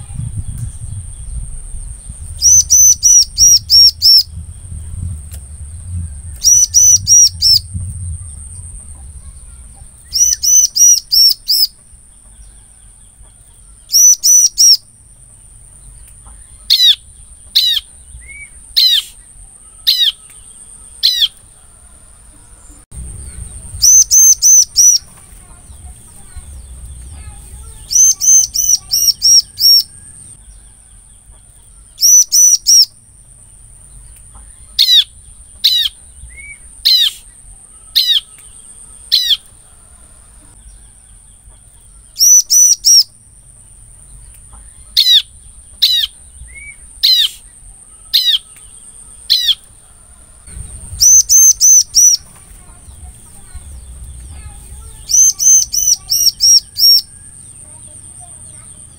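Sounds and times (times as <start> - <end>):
high-pitched whine: 0.0 - 11.5, 22.8 - 30.4, 50.5 - 53.0.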